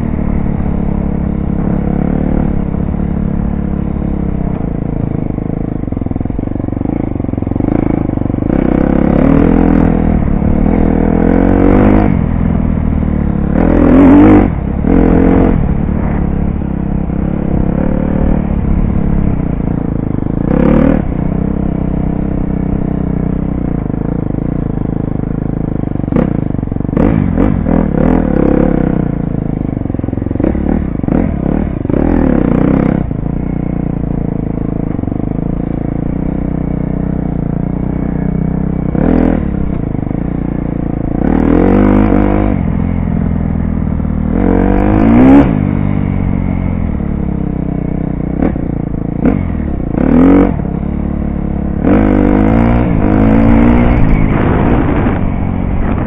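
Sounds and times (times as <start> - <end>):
dirt bike engine revving: 0.0 - 24.6, 25.2 - 29.3, 30.0 - 43.3, 44.0 - 56.0.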